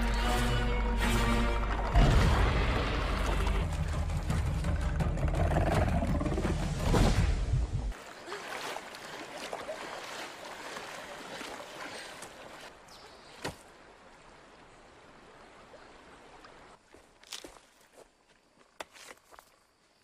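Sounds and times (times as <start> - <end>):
person swimming and splashing: 6.6 - 12.7
flowing river water: 7.9 - 17.2.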